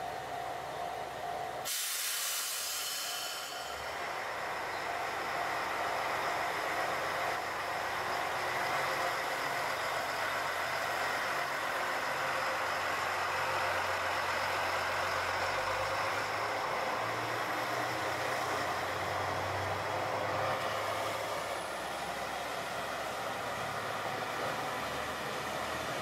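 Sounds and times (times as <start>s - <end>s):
diesel train engine running: 0.0s - 26.0s
train mechanical noise: 0.0s - 26.0s.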